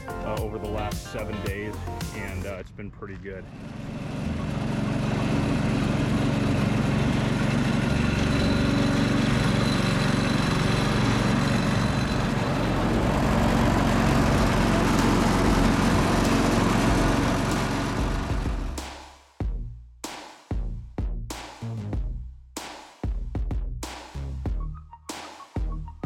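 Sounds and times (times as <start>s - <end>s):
small engine running: 3.4s - 18.8s.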